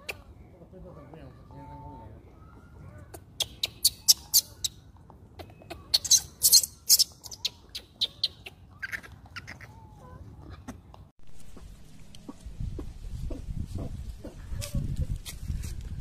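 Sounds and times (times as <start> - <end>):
monkeys squeaking: 3.0 - 10.1
low monkey calls: 5.4 - 10.2.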